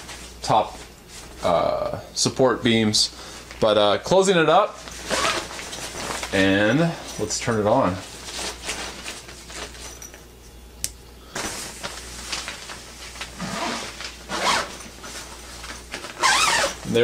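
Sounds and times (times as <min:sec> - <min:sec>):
zipper rasping closed: 0:13.4 - 0:14.8, 0:16.2 - 0:16.8.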